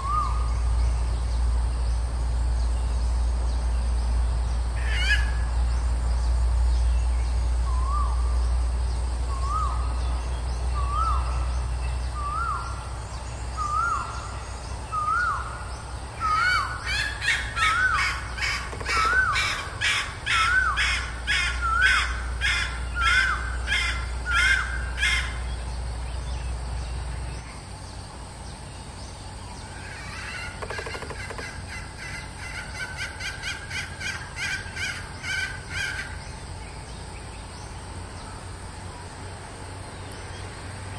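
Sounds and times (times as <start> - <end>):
higher faster bird calls: 4.8 - 5.5, 13.6 - 25.5, 29.7 - 36.2
junglefowl calling: 4.8 - 5.5, 16.2 - 25.5, 29.7 - 36.2.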